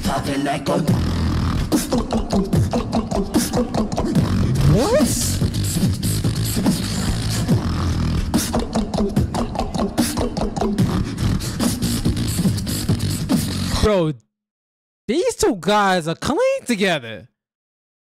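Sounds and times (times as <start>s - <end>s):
beatboxing: 0.0s - 13.8s
vocal bass line: 0.0s - 13.9s
rising vocal glide: 1.8s - 5.4s.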